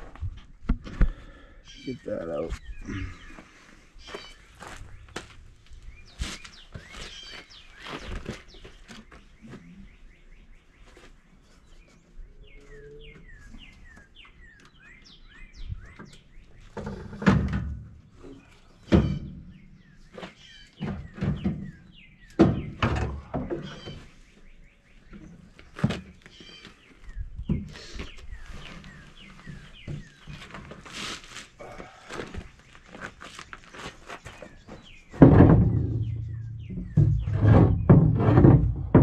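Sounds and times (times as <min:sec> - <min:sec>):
bird chirping: 0:01.6 - 0:17.1, 0:18.2 - 0:30.7, 0:31.6 - 0:39.0
heavy metal thunks and knocks: 0:22.4 - 0:23.7, 0:35.2 - 0:39.0.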